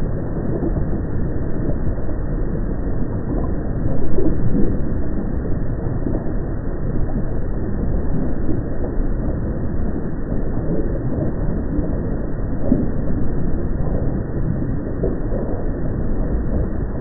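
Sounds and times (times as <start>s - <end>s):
volcano low rumble: 0.0s - 17.0s.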